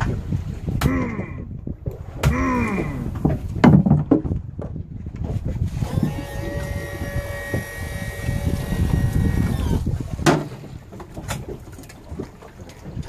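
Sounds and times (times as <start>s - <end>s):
low rumble of wind and water: 0.0s - 13.0s
steady mechanical whine: 5.8s - 9.9s.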